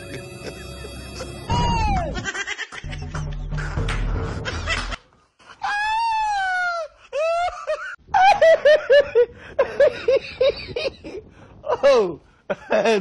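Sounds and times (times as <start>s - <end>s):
high-pitched laughs: 0.0s - 3.3s.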